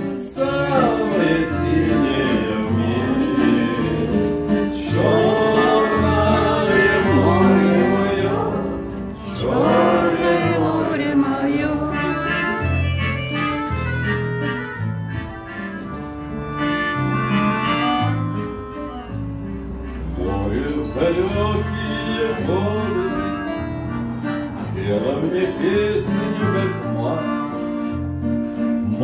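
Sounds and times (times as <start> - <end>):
man singing: 0.0 - 8.7, 20.1 - 23.5, 24.6 - 27.6
accordion low chords: 0.0 - 29.0
classical guitar: 0.0 - 29.0.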